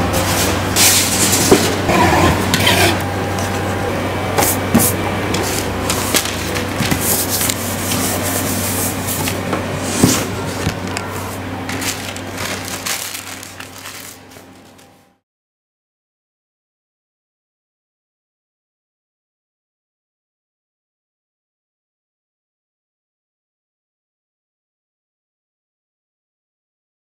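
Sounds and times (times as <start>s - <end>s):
steady low hum: 0.0s - 15.2s
packing tape pulled off dispenser: 11.7s - 14.9s.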